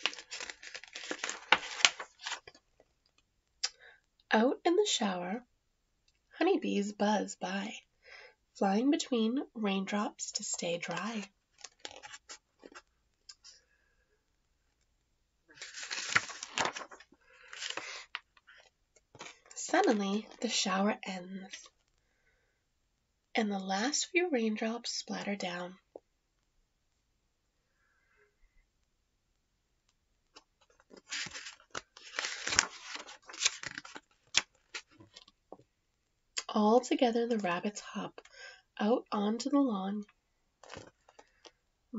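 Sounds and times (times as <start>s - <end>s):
paper page turning: 0.0s - 2.6s, 10.9s - 12.8s, 15.6s - 18.2s, 30.7s - 35.3s, 40.6s - 41.2s.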